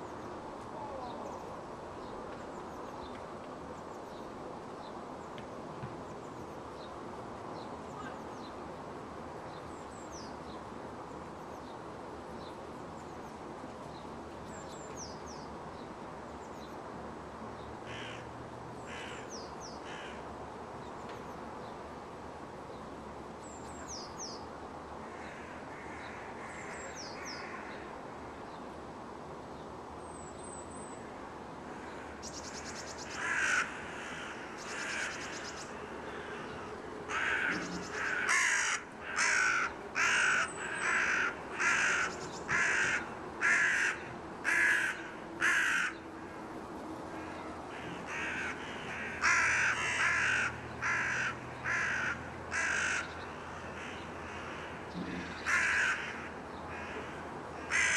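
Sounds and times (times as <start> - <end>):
city hum: 0.0 - 57.9
crow cawing: 17.9 - 18.3, 18.9 - 20.2, 25.0 - 27.7, 31.7 - 46.0, 47.2 - 57.9.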